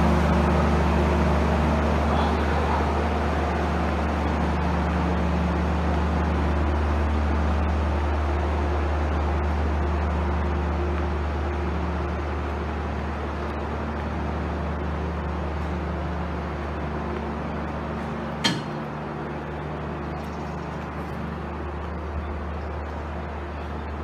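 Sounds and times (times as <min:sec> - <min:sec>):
train diesel engine idling: 0:00.0 - 0:24.0
sharp knock: 0:18.4 - 0:18.8.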